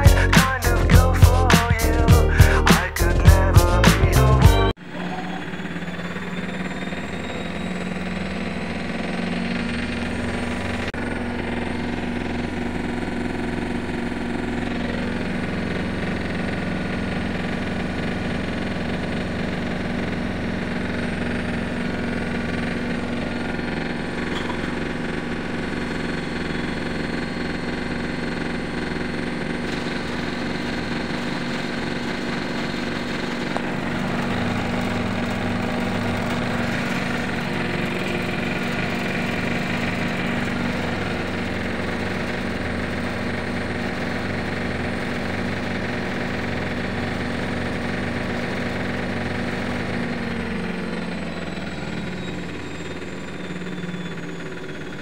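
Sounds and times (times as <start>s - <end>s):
washing machine spin cycle: 4.7s - 55.0s.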